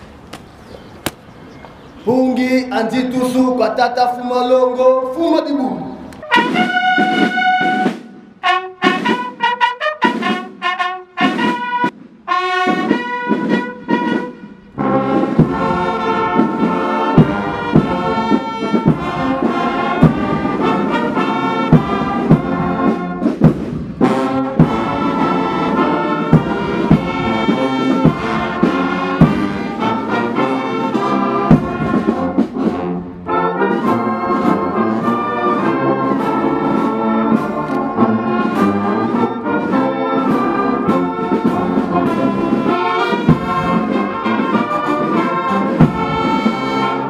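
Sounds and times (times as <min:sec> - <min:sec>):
brass band playing: 0:05.5 - 0:47.0.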